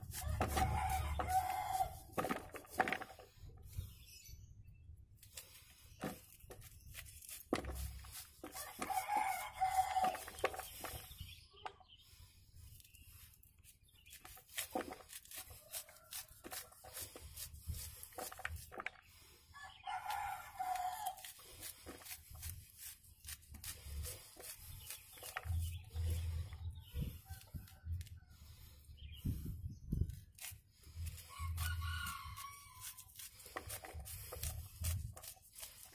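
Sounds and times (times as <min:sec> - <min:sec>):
rooster crowing: 0:00.1 - 0:02.0, 0:08.6 - 0:10.2, 0:19.6 - 0:21.2, 0:31.3 - 0:33.0
knife cutting corn kernels: 0:05.2 - 0:11.0, 0:13.6 - 0:18.9, 0:20.0 - 0:25.7, 0:30.1 - 0:35.9.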